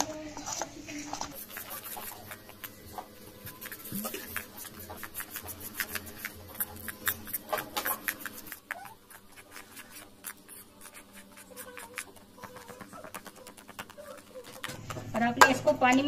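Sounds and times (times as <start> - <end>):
spoon stirring batter in metal bowl: 0.0 - 16.0.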